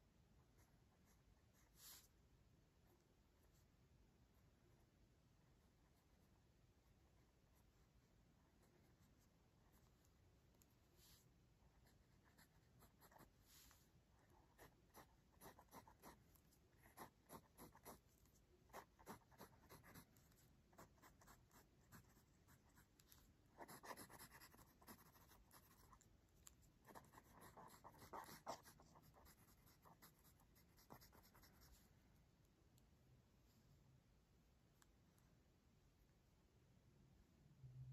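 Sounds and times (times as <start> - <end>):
pencil scratching on paper: 7.4 - 31.9.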